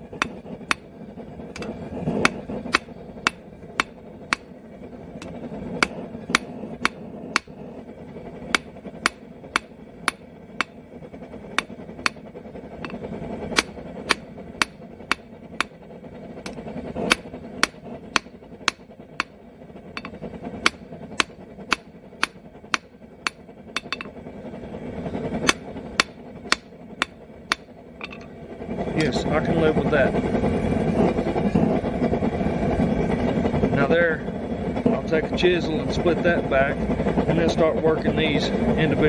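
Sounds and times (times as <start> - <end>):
hammer striking steel on anvil: 0.2 - 0.9, 1.6 - 4.5, 5.2 - 7.6, 8.5 - 10.8, 11.6 - 15.8, 16.4 - 19.4, 20.0 - 24.2, 25.4 - 28.3.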